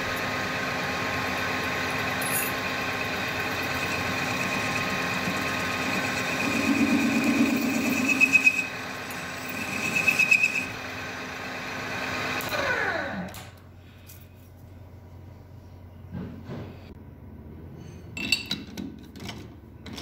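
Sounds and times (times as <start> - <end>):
metal lathe whining: 0.0 - 13.3
lathe chuck spinning down: 0.0 - 13.4
tool bit cutting metal: 3.4 - 10.7.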